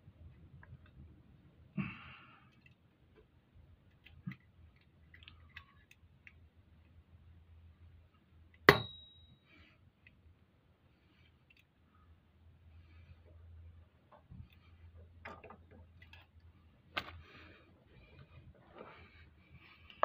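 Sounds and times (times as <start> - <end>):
sharp metallic clink: 8.7 - 9.4.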